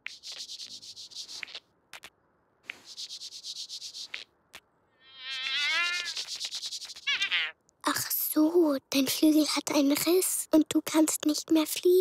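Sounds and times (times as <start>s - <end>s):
cartoon bee buzzy crying: 5.0s - 7.6s.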